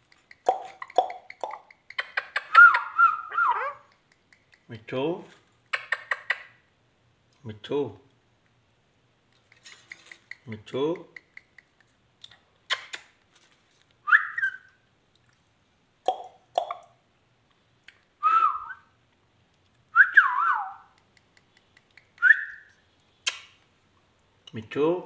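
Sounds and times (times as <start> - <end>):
sharp clicks: 21.0 - 22.3, 23.2 - 23.6.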